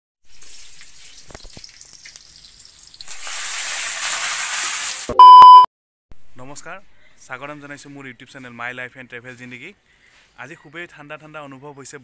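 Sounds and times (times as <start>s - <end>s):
food sizzling in hot oil: 0.2s - 5.1s
loud electronic beep: 5.1s - 5.7s.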